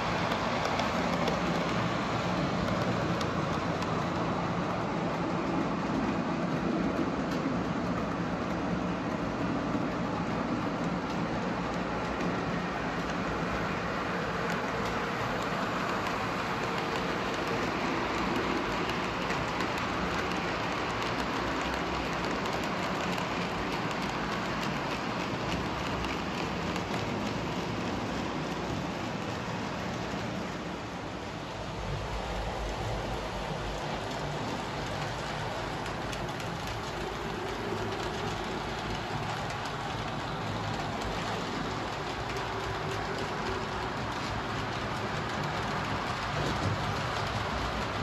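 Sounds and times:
model train rolling rumble: 0:00.0 - 0:48.0
wheels clicking on rails: 0:00.0 - 0:48.0
model train wheels rattling: 0:32.2 - 0:48.0.

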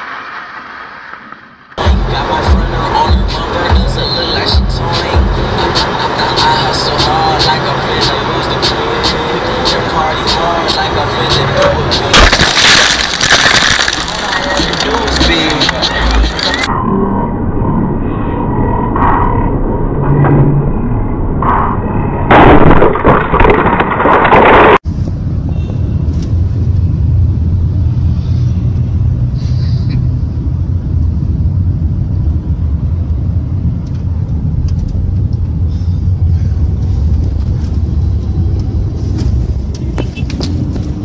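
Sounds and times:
road and engine rumble in car: 0:01.7 - 0:16.7, 0:24.8 - 0:41.0
loud crash: 0:12.1 - 0:15.2, 0:22.3 - 0:24.8.

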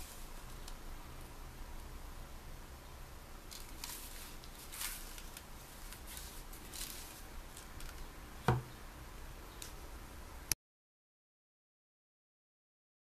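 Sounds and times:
gloved hands rustling: 0:03.5 - 0:08.1
knife thump on cloth: 0:08.5 - 0:08.7.

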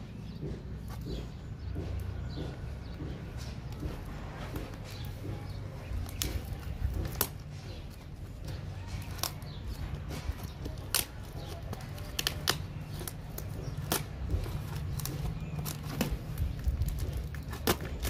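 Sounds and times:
knife cutting tape and plastic: 0:03.7 - 0:18.0.

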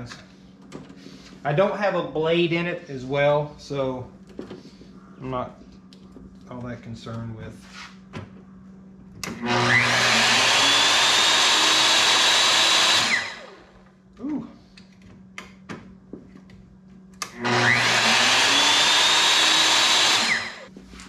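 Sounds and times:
table saw motor whining: 0:09.2 - 0:13.9, 0:17.2 - 0:20.7.

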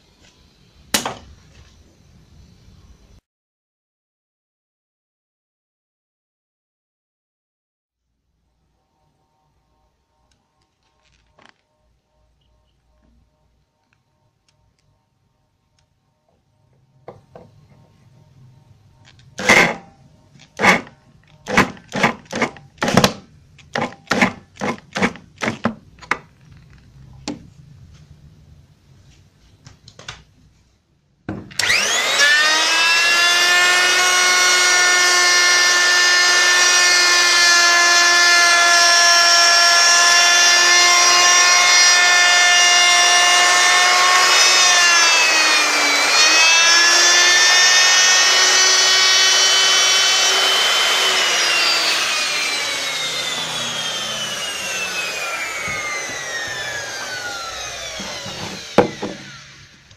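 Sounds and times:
trim router whining: 0:18.6 - 0:23.2, 0:31.5 - 0:59.9
electric drill bursts: 0:19.4 - 0:22.6, 0:31.6 - 0:59.9.

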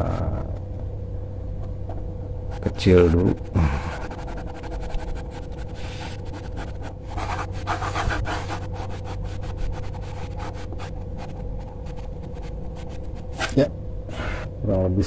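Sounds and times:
steady hum: 0:00.0 - 0:15.0
pencil sketching on paper: 0:02.5 - 0:13.6.

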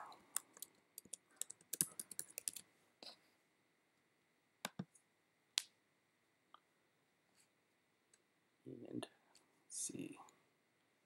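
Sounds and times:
computer keyboard typing: 0:00.3 - 0:02.6.

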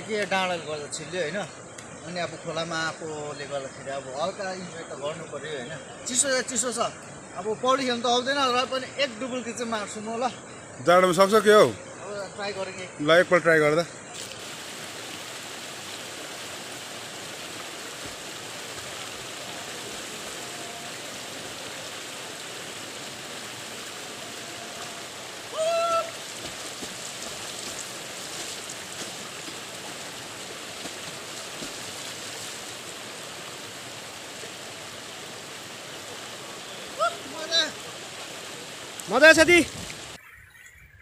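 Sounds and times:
river water over rocks: 0:00.0 - 0:40.4
loud vocal cry: 0:25.5 - 0:26.2.

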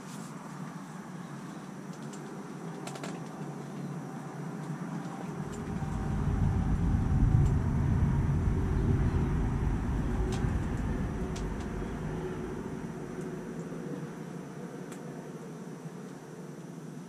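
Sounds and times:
wind buffeting microphone: 0:05.2 - 0:14.4.

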